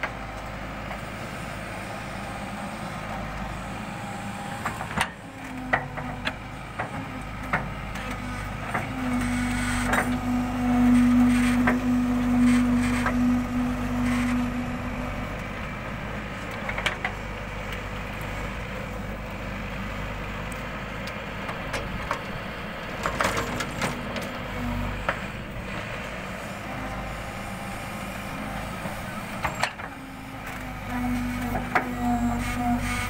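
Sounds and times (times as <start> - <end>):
diesel engine and hydraulics: 0.0 - 33.0
steady whine: 8.0 - 17.9.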